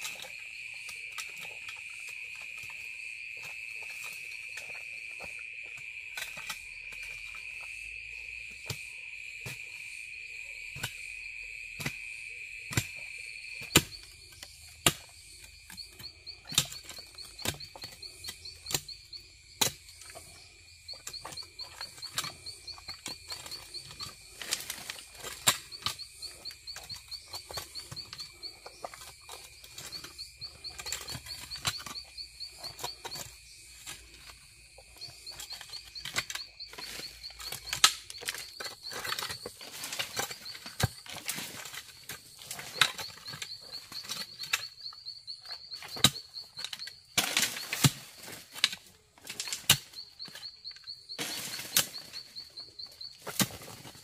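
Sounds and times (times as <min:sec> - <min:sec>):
pulsing insect trill: 0:00.0 - 0:54.0.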